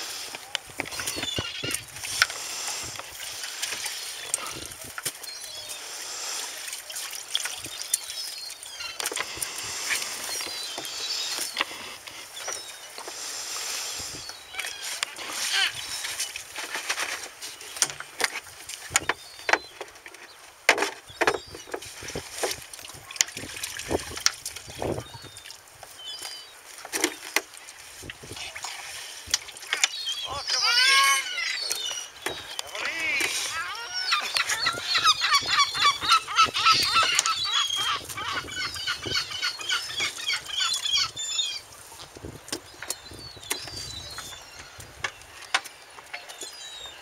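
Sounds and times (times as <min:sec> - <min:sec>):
fishing net rustling: 0:00.0 - 0:19.1
birds calling harshly: 0:00.0 - 0:23.9, 0:28.2 - 0:47.0.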